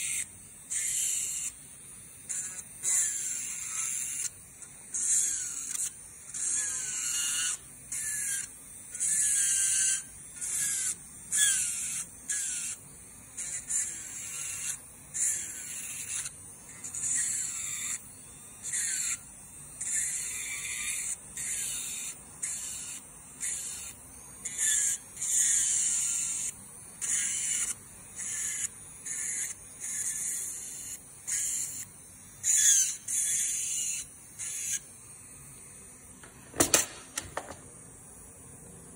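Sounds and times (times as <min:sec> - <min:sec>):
electric nail drill grinding: 0:00.0 - 0:38.9.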